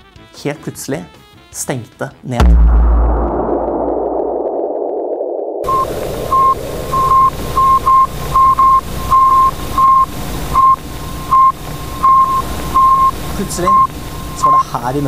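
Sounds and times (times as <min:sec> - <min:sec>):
low rumble: 0:02.4 - 0:09.2
electronic beeps: 0:05.6 - 0:14.8
steady hiss: 0:05.7 - 0:15.0.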